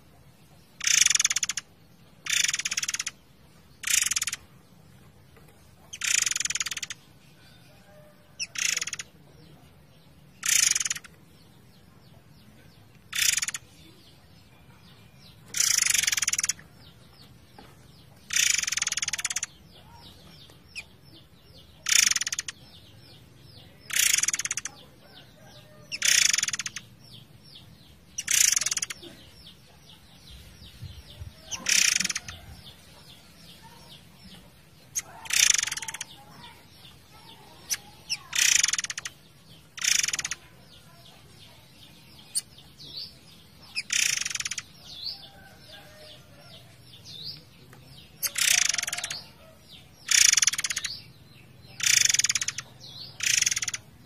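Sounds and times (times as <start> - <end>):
small high chirps: 0.8 - 3.2, 3.8 - 4.5, 5.9 - 7.0, 18.2 - 20.9, 21.8 - 22.7, 33.6 - 42.9, 43.6 - 47.5, 48.2 - 51.1, 51.8 - 53.9.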